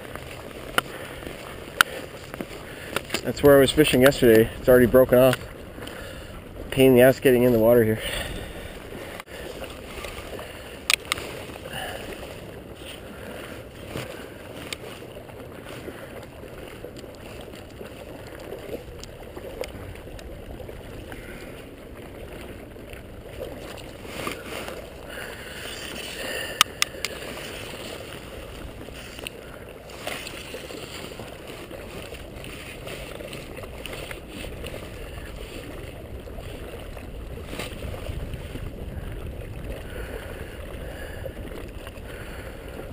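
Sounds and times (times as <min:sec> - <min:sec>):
river water sloshing and gurgling: 0:00.0 - 0:42.9.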